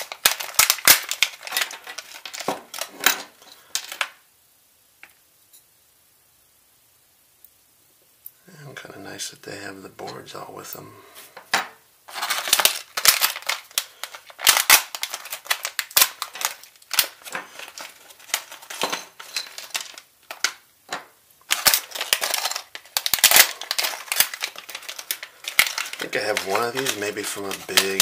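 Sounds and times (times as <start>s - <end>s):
plastic bags crinkling: 0.0s - 4.2s, 12.1s - 28.0s.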